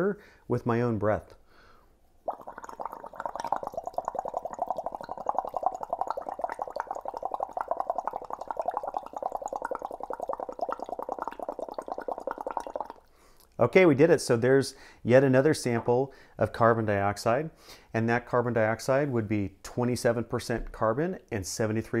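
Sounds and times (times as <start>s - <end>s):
bubbling through straw in water: 2.2s - 13.1s.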